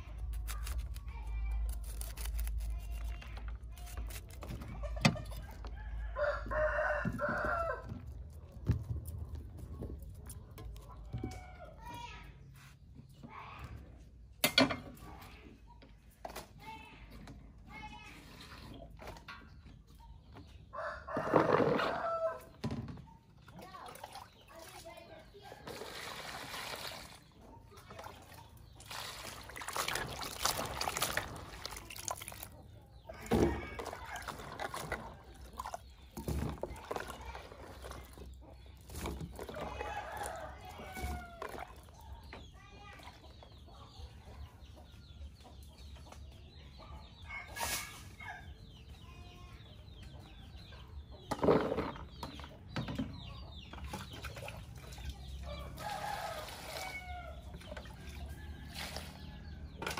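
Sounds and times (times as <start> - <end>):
chickens clucking: 4.5 - 12.2, 18.4 - 59.9
rooster crowing: 5.8 - 7.9, 20.8 - 22.5
water sloshing in plastic bowl: 21.1 - 42.3, 53.7 - 59.9.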